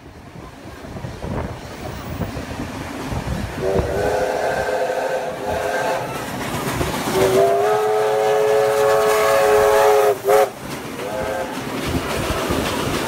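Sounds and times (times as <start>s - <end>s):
locomotive steam and wheel noise: 0.0s - 13.0s
steam whistle blasts: 3.6s - 6.3s, 7.2s - 11.5s.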